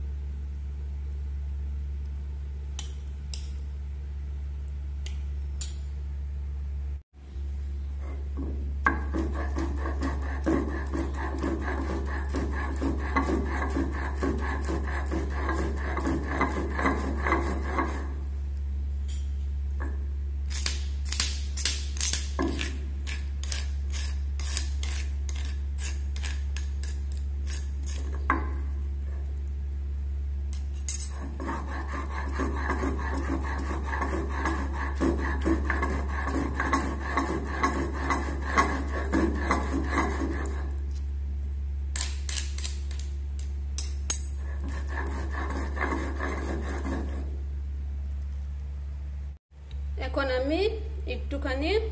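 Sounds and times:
stone roller grinding on slab: 0:08.0 - 0:18.4, 0:22.0 - 0:29.4, 0:31.1 - 0:41.0, 0:44.3 - 0:47.4.

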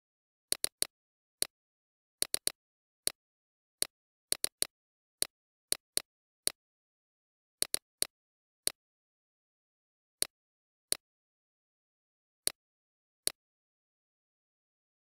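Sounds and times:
computer mouse clicks: 0:00.5 - 0:01.6, 0:02.2 - 0:03.2, 0:04.3 - 0:04.7, 0:07.6 - 0:08.1.

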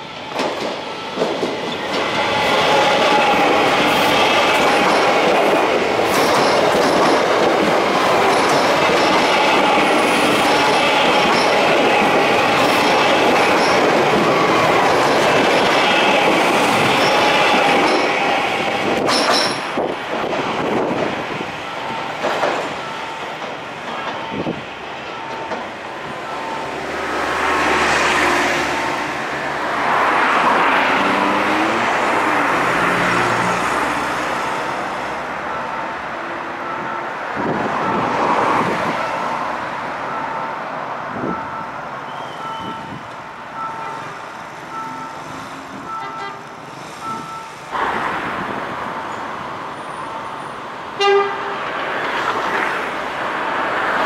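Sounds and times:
electric train passing: 0:00.0 - 0:54.0
wheel and rail noise: 0:00.0 - 0:54.0
two-tone crossing signal beeping: 0:24.1 - 0:27.3, 0:41.2 - 0:45.2, 0:47.0 - 0:47.6.

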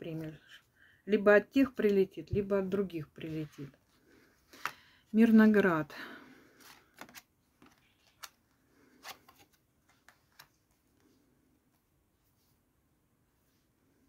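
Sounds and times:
cards clicking and sliding: 0:04.5 - 0:04.8, 0:06.6 - 0:10.8.

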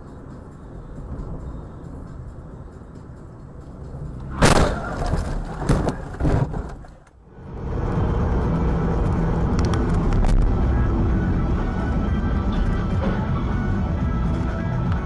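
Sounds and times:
car road and engine rumble: 0:00.0 - 0:15.0
car crash impact: 0:04.3 - 0:07.0
clattering debris: 0:04.4 - 0:07.1.

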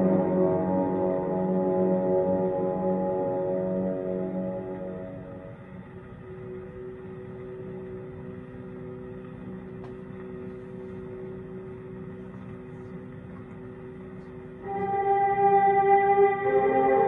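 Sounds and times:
orchestral record on phonograph: 0:00.0 - 0:17.0
record surface noise: 0:05.9 - 0:15.0.

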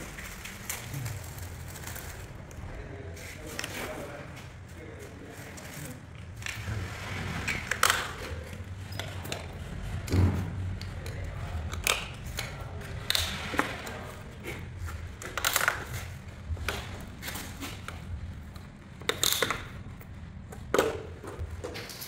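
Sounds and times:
plastic clips clicking and knocking: 0:15.2 - 0:17.0, 0:17.8 - 0:20.0.

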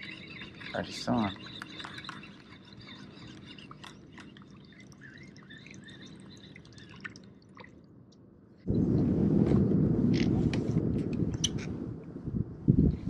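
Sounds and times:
bird chirps: 0:00.0 - 0:07.0
water dripping: 0:00.0 - 0:08.3
wind on microphone: 0:08.7 - 0:13.0.

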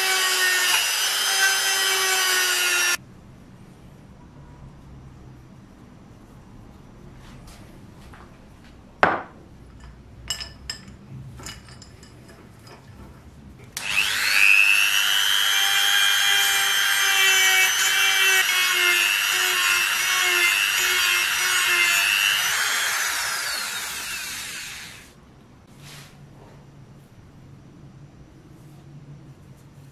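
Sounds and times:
rotary tool whining: 0:00.0 - 0:03.0, 0:13.8 - 0:25.1.

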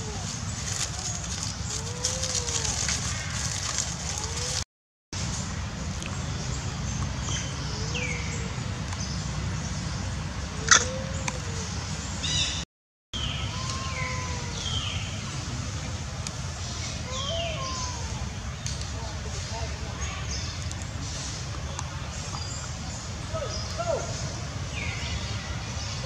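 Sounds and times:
lower arched animal calls: 0:10.6 - 0:12.4.

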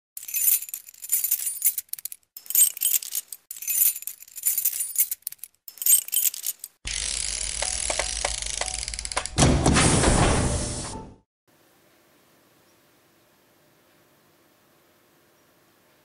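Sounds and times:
metallic jingling: 0:00.2 - 0:06.8.

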